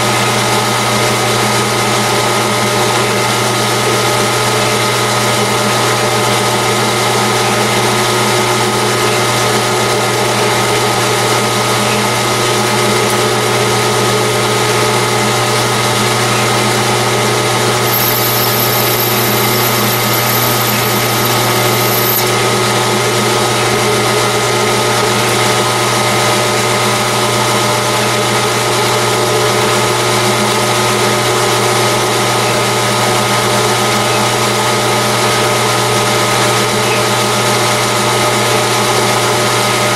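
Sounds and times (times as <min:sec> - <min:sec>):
metal lathe whirring: 0:15.5 - 0:22.5
thin high whine: 0:17.8 - 0:22.4.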